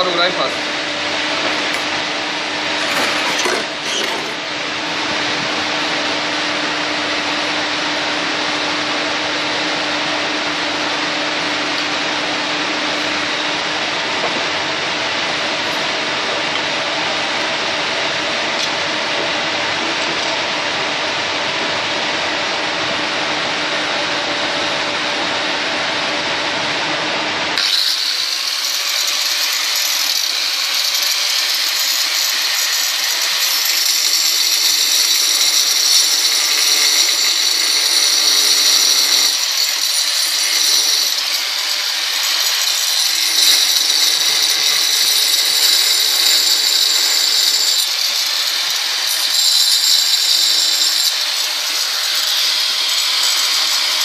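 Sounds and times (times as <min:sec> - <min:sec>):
angle grinder cutting stone: 0:00.0 - 0:04.5, 0:27.6 - 0:54.0.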